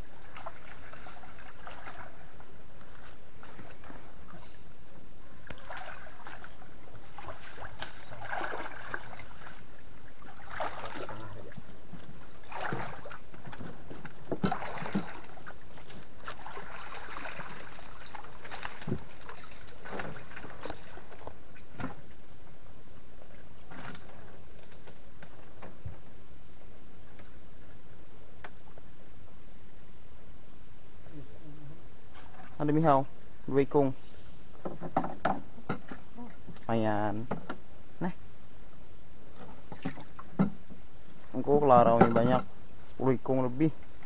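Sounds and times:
water sloshing and splashing: 0.0 - 4.7, 5.4 - 22.2, 32.1 - 33.0, 39.3 - 42.6
knocks against wooden canoe hull: 34.6 - 36.0, 41.8 - 42.5.

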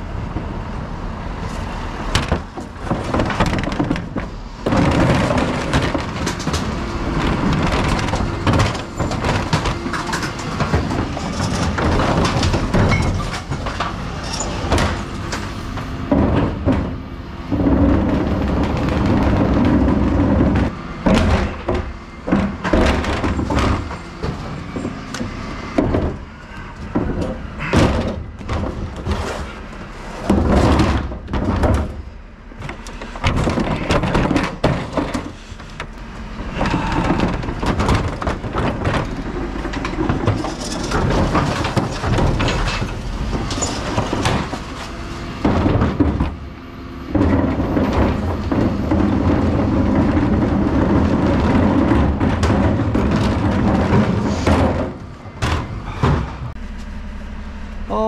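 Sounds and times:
refuse truck running: 0.0 - 58.0
wheelie bin wheels rattling: 2.2 - 56.6
bin lids knocking and clattering: 47.1 - 56.4.

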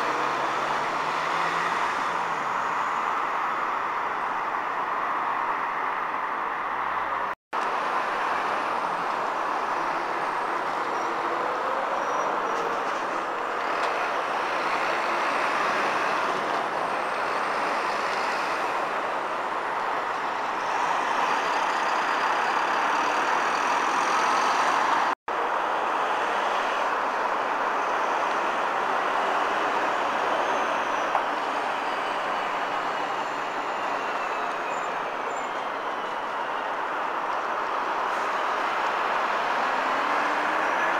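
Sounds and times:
heavy road traffic: 0.0 - 40.9.

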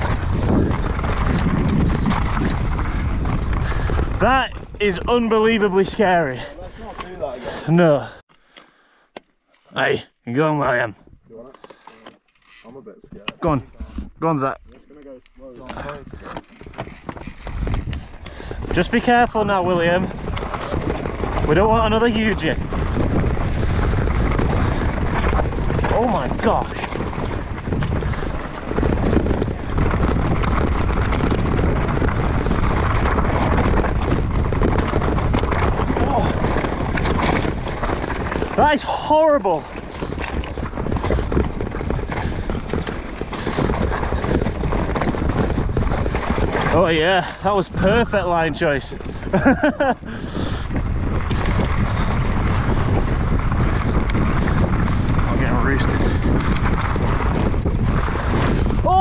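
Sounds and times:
bike tyres rumbling over rocks: 0.0 - 8.2, 11.6 - 59.0
wind buffeting microphone: 0.0 - 8.2, 13.4 - 59.0
bike rattling clicks: 11.5 - 14.2, 14.9 - 18.8, 20.0 - 38.6, 39.6 - 46.9, 48.9 - 58.7.

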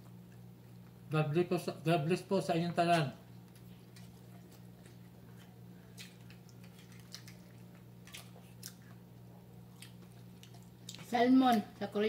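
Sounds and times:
steady low hum: 0.0 - 12.0
people chewing and lip-smacking: 2.9 - 11.6.

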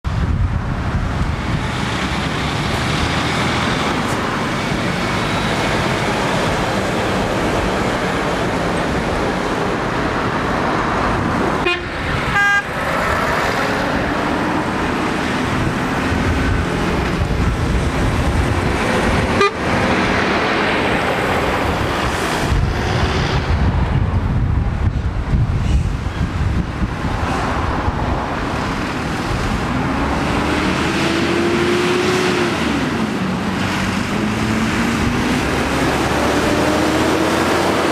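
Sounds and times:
trucks and cars driving: 0.0 - 37.9
short horn toot: 11.6 - 12.7.

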